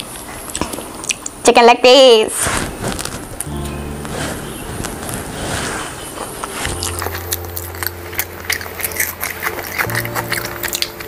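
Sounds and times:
biting and chewing chicken: 0.0 - 1.4, 6.4 - 11.0
steady low hum: 2.7 - 11.0.

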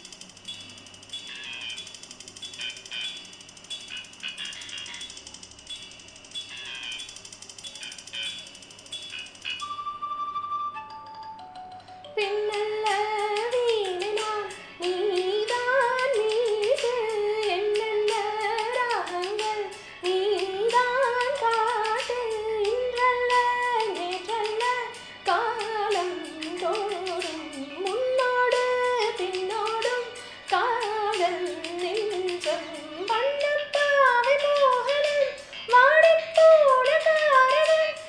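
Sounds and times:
backing music with ticking beat: 0.0 - 38.0
woman singing: 12.1 - 38.0.

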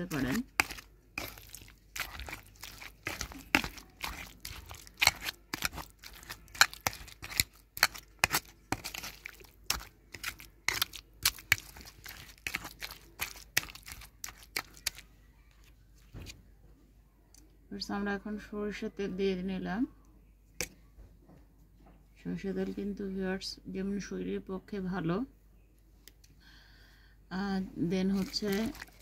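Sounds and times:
utensil scraping metal bowl: 0.0 - 15.0
wet squishing mashing strokes: 0.0 - 15.7, 27.9 - 29.0.

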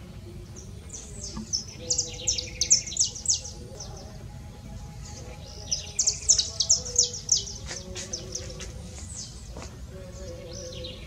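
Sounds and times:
songbird chirping: 0.0 - 11.0.

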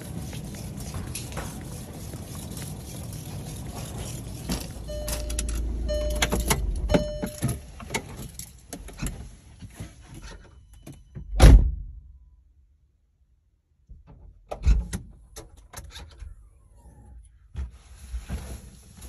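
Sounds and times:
low rumbling: 0.0 - 7.8
short beeps: 4.8 - 7.8.

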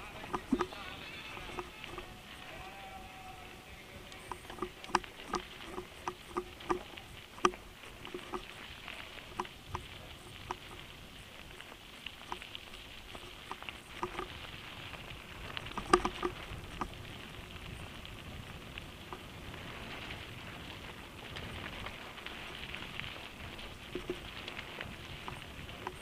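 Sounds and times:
clicks and rattles: 0.0 - 2.4, 4.1 - 14.6, 15.4 - 17.2, 21.3 - 26.0
bike tyres crunching on gravel: 0.0 - 26.0.

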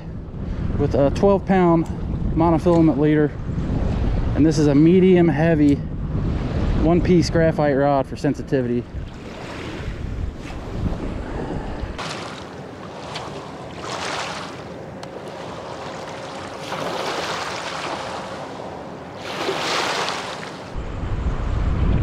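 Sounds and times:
waves washing onto gravel shore: 12.0 - 20.8.

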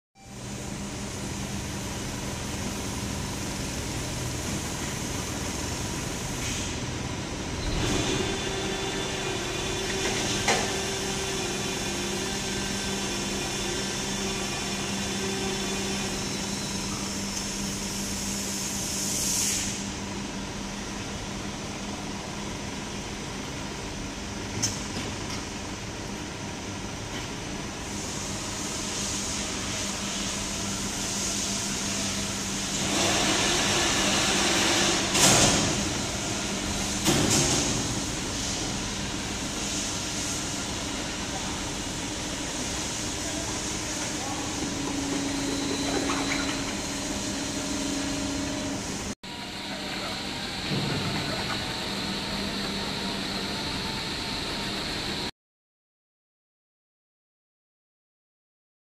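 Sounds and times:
hydraulic press humming: 29.3 - 55.2.

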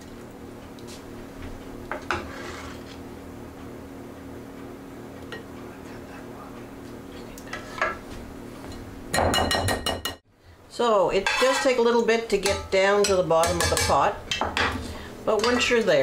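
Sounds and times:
steady low hum: 0.0 - 9.6, 10.3 - 16.0
ladle scraping metal pot: 2.1 - 3.0.

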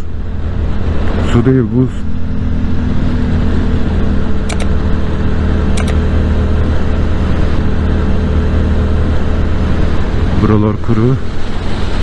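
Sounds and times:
constant rushing noise: 0.0 - 12.0
short high clicks: 5.8 - 6.0.

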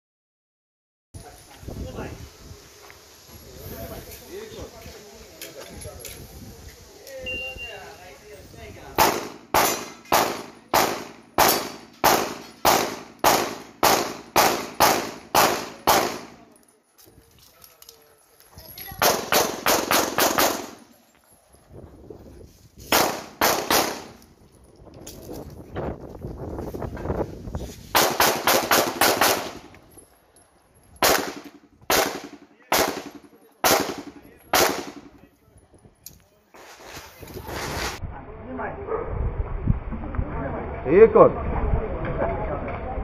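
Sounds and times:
pistol shots: 9.0 - 16.4, 19.0 - 20.8, 22.9 - 24.2, 27.9 - 29.7, 31.0 - 35.1.

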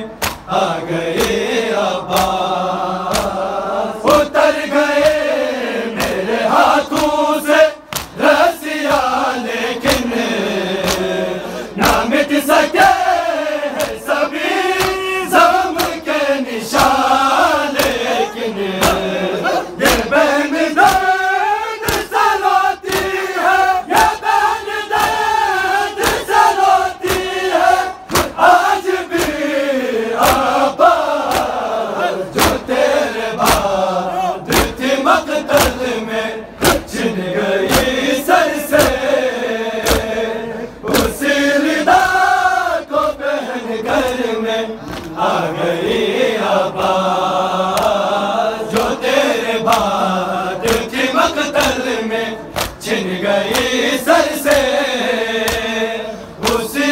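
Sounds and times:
crowd of men chanting: 0.0 - 56.9
open-hand chest slaps: 0.2 - 0.5, 2.1 - 2.4, 3.1 - 3.4, 5.9 - 8.3, 10.8 - 11.2, 11.8 - 12.1, 13.8 - 15.1, 15.7 - 16.1, 16.7 - 17.1, 17.7 - 18.1, 18.8 - 19.1, 19.8 - 20.2, 20.8 - 21.2, 21.8 - 23.3, 23.9 - 25.3, 26.0 - 29.4, 30.2 - 30.6, 31.2 - 31.6, 32.3 - 32.7, 33.4 - 33.8, 34.5 - 34.9, 35.5 - 35.9, 36.6 - 37.0, 37.6 - 38.0, 38.7 - 39.0, 39.8 - 40.1, 44.0 - 45.2, 47.7 - 48.0, 49.6 - 50.0, 50.6 - 51.0, 52.5 - 53.8, 54.4 - 54.8, 55.4 - 55.8, 56.4 - 56.8.

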